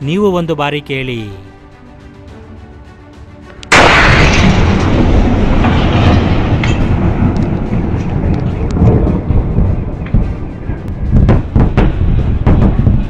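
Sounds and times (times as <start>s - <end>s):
sharp cracks: 3.6s - 9.4s
heavy rumble: 3.7s - 13.0s
loud boom: 3.7s - 13.0s.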